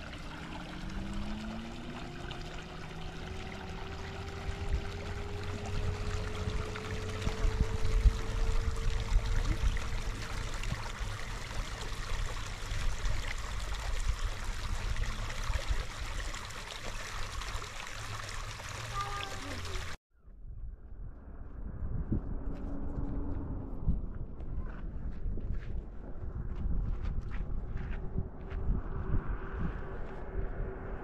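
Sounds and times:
low rumble: 0:00.0 - 0:16.5, 0:20.2 - 0:31.0
stream trickling over stones: 0:00.0 - 0:20.0.

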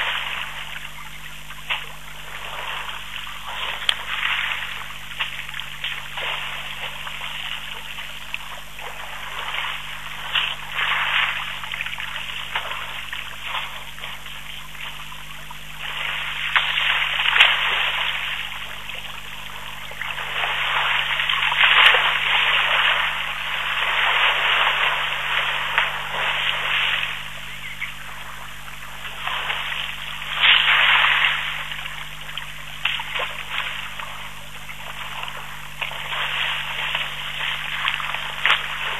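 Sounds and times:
elephants splashing water: 0:00.0 - 0:38.9.

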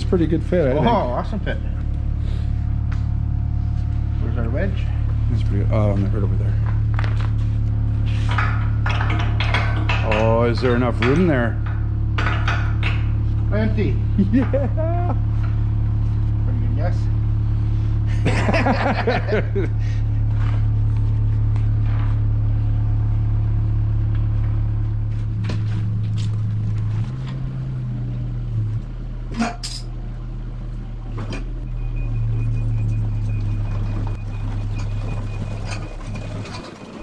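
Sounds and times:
diesel excavator engine running: 0:00.0 - 0:37.0.

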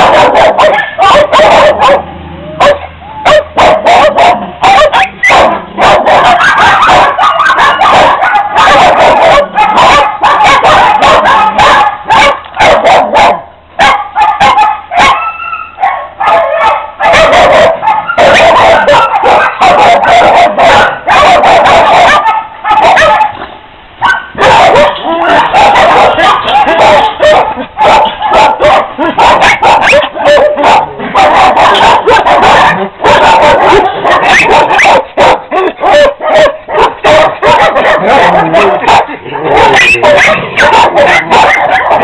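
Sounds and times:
dogs barking and yipping: 0:00.0 - 0:42.0.

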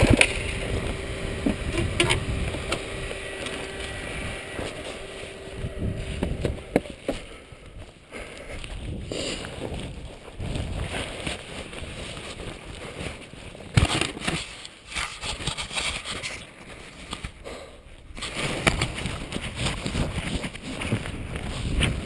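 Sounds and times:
camera handling rustling: 0:13.7 - 0:17.4.

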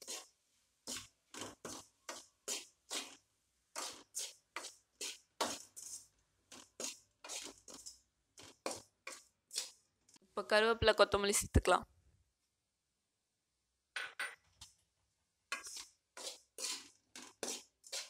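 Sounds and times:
metal ladle scraping a pan: 0:00.0 - 0:09.8, 0:15.5 - 0:18.0.

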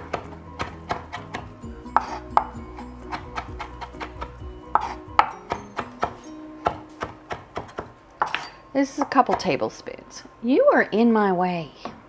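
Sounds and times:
knife chopping on wooden board: 0:00.0 - 0:08.4, 0:09.0 - 0:09.6
quiet background music: 0:00.0 - 0:12.0.

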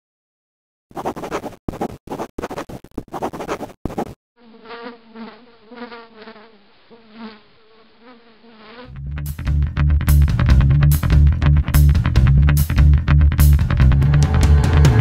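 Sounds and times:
pencil scribbling on paper: 0:00.9 - 0:04.2.

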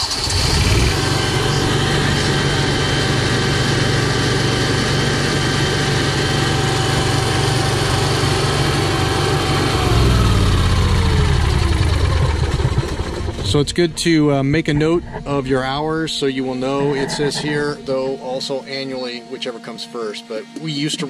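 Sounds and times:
generator running: 0:00.0 - 0:20.6
thin whine: 0:12.9 - 0:21.0.

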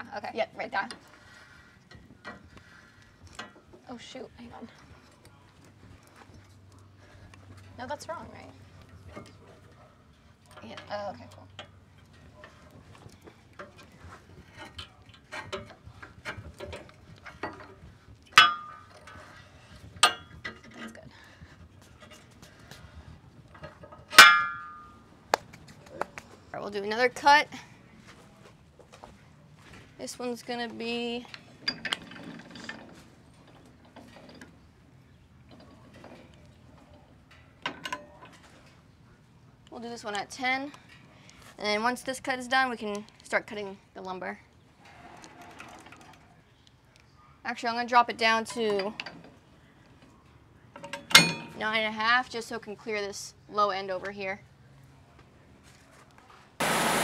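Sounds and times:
loud ringing metal clang: 0:24.2 - 0:25.0.

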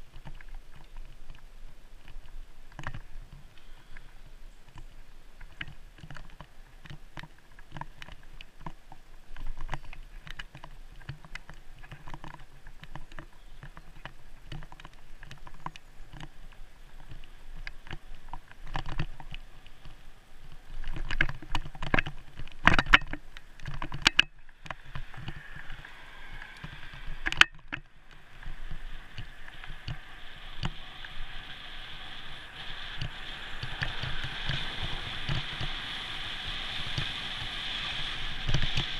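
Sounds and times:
wind and road noise hiss: 0:00.0 - 0:38.9
bicycle rattles and knocks: 0:04.7 - 0:25.8, 0:26.4 - 0:31.4.

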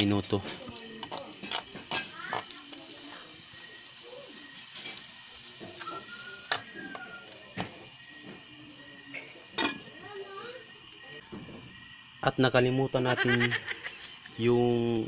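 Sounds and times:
cricket chirping: 0:00.0 - 0:15.0
cookware clinking: 0:09.5 - 0:10.0.

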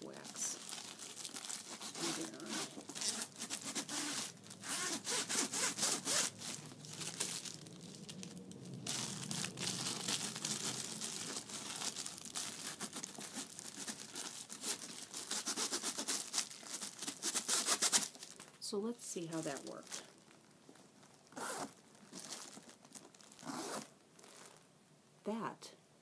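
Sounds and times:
wax paper rasping on zipper: 0:01.6 - 0:06.6, 0:12.7 - 0:18.1.

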